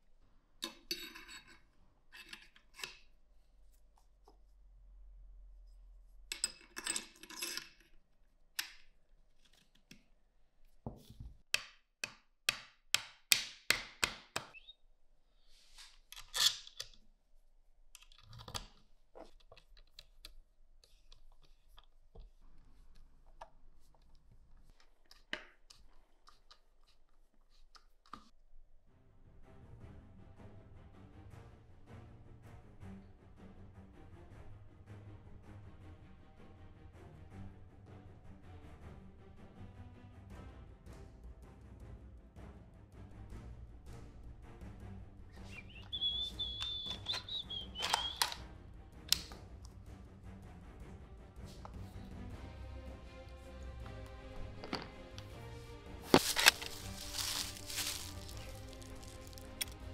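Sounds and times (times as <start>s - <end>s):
rifle parts clicking and rubbing: 0.6s - 3.1s, 15.8s - 17.1s, 17.9s - 28.4s, 45.8s - 48.4s, 56.0s - 59.9s
screwdriver clicks: 46.9s - 48.4s.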